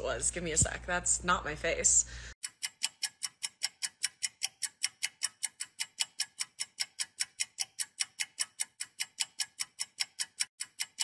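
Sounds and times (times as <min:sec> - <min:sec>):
rapid timer ticking: 0:02.3 - 0:11.0.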